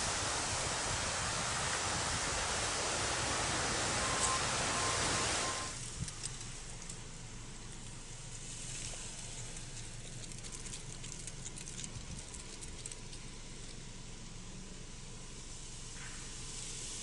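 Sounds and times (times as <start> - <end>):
low fire rumble: 0.0 - 17.0
brush fire crackling and popping: 8.6 - 13.8.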